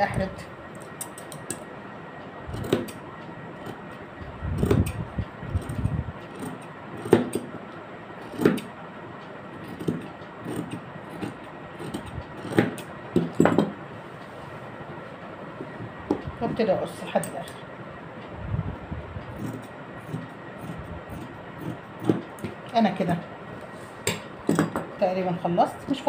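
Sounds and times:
scissors snipping cloth: 2.5s - 3.0s, 4.6s - 5.0s, 5.6s - 7.5s, 8.2s - 8.7s, 9.6s - 13.4s, 19.3s - 22.6s.

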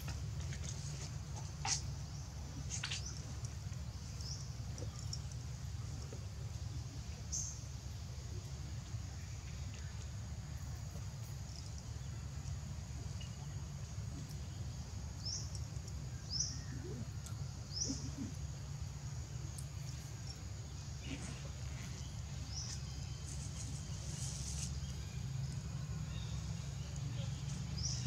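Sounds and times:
rustles in dry leaves: 21.1s - 26.2s.

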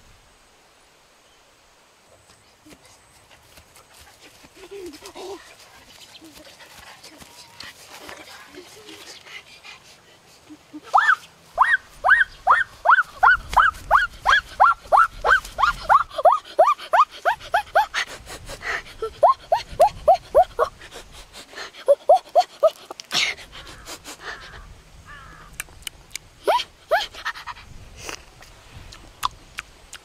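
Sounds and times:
animal yelping: 10.8s - 18.0s, 19.0s - 20.8s, 21.8s - 23.0s.

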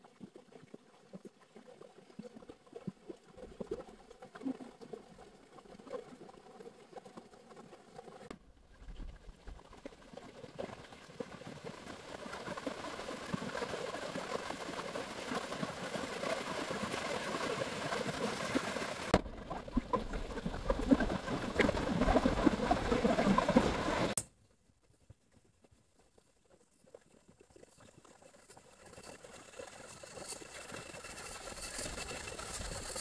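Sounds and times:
stream rushing over rocks: 20.0s - 24.2s.

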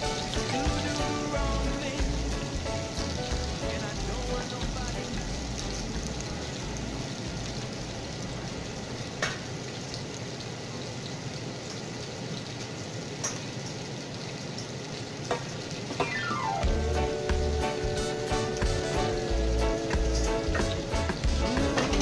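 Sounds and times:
mushrooms sizzling in a skillet: 0.0s - 9.5s, 15.2s - 22.0s.

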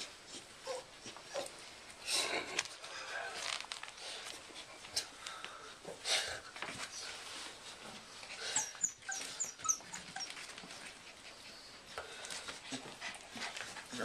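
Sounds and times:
puppies scrambling rustling: 6.4s - 14.0s
puppies whimpering: 8.4s - 11.9s
puppy high squeaks: 8.6s - 10.5s.

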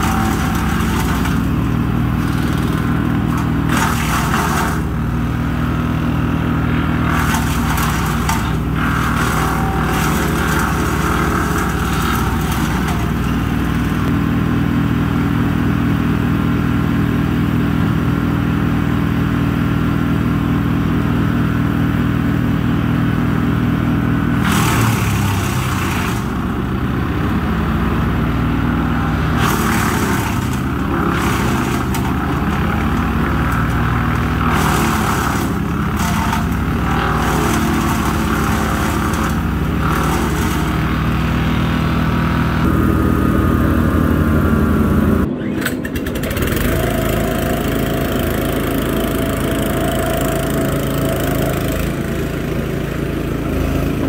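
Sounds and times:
branches being chipped: 0.0s - 6.3s, 6.9s - 14.1s, 28.9s - 41.5s
wood chipper engine running: 0.0s - 54.0s.

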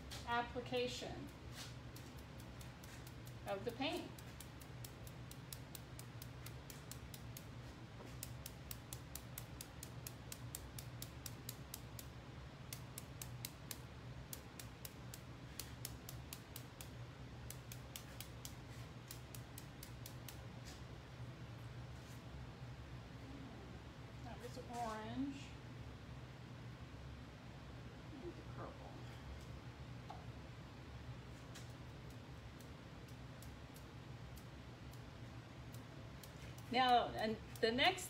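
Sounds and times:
steady low hum: 0.0s - 38.0s
brush tapping light ticks: 1.1s - 12.1s, 12.7s - 20.8s, 31.5s - 38.0s.

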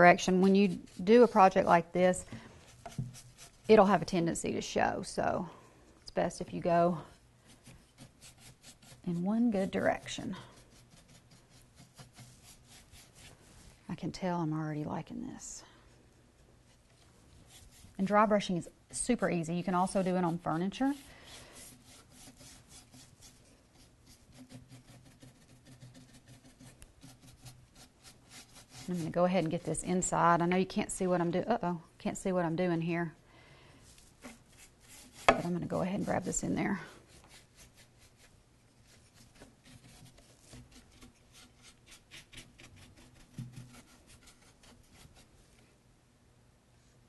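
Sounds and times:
brush scratching on wood: 0.0s - 2.0s, 2.6s - 4.0s, 7.5s - 13.4s, 17.4s - 18.2s, 19.7s - 30.1s, 34.0s - 45.3s.

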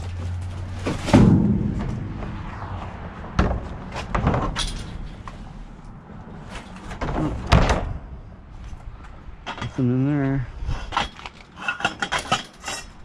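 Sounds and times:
sharp bangs: 0.9s - 5.3s.

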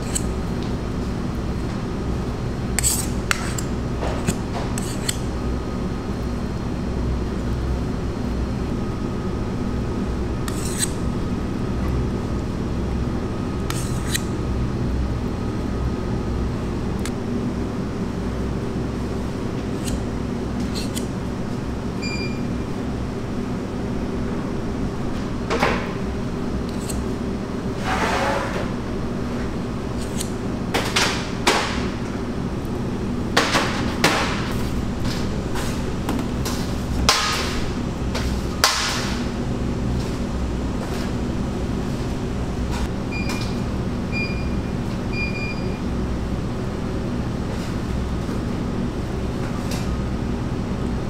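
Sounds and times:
kitchen equipment hum: 0.0s - 51.0s
spatula scraping metal bowl: 2.8s - 3.7s, 4.3s - 5.2s, 10.5s - 11.0s, 13.7s - 14.3s, 19.8s - 20.0s, 20.6s - 21.1s.

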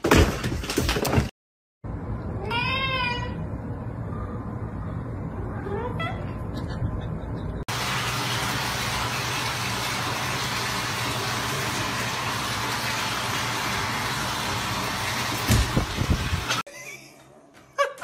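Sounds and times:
low hum: 3.4s - 7.6s.

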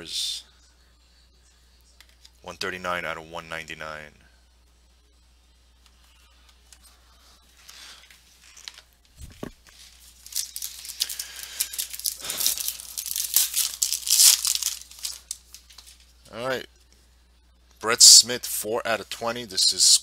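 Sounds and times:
foil pack tearing and crinkling: 9.7s - 16.0s.

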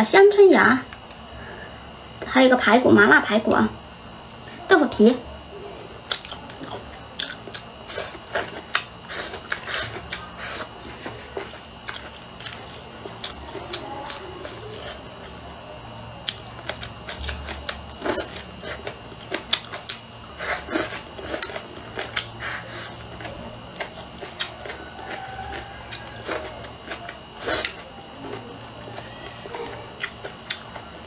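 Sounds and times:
chewing food: 6.0s - 31.0s
slurping food: 7.3s - 15.0s, 16.4s - 23.2s, 23.8s - 28.5s.

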